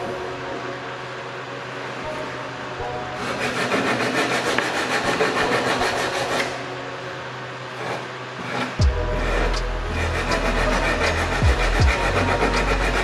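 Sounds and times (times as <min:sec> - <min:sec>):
sandpaper scrubbing on wood: 0:03.2 - 0:06.6, 0:07.8 - 0:13.0.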